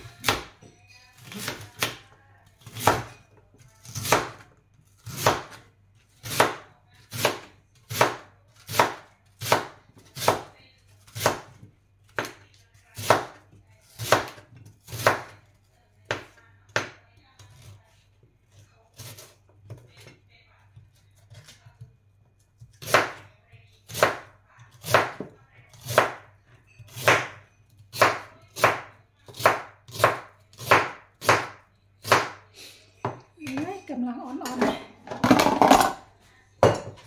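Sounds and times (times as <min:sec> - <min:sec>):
knife chopping on cutting board: 0:00.0 - 0:00.6, 0:02.6 - 0:03.1, 0:03.8 - 0:04.4, 0:05.0 - 0:05.6, 0:06.2 - 0:12.4, 0:13.0 - 0:15.4, 0:22.6 - 0:23.2, 0:23.9 - 0:32.4.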